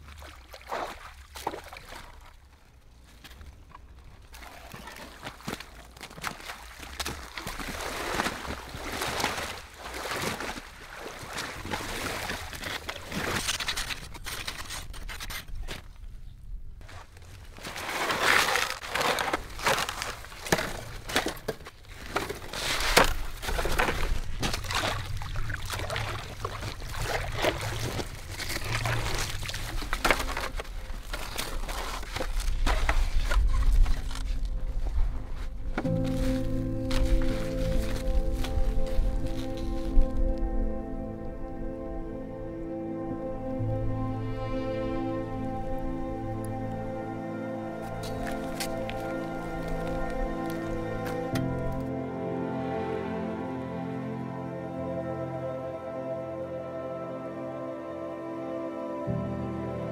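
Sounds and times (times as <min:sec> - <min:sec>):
water sloshing and dripping: 0:00.0 - 0:14.7, 0:17.5 - 0:40.4, 0:47.7 - 0:51.9
ice blocks scraping and knocking: 0:11.9 - 0:15.9, 0:17.6 - 0:25.2, 0:27.3 - 0:34.9.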